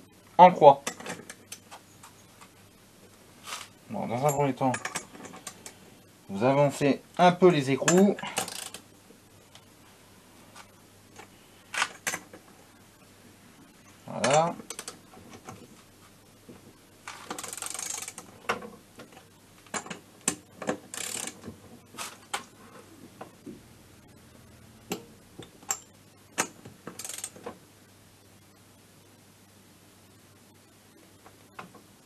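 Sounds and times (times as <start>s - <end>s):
metal tools clicking and knocking: 4.2s - 5.7s
socket ratchet clicking: 8.4s - 8.8s, 17.4s - 18.2s, 20.3s - 21.4s, 26.4s - 27.4s.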